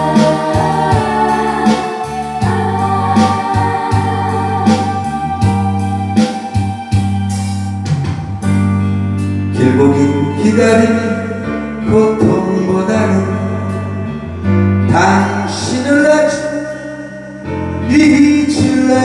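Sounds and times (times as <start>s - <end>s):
steady drum beat: 0.0s - 8.6s
held bass notes: 0.0s - 19.0s
keyboard melody: 0.0s - 19.0s.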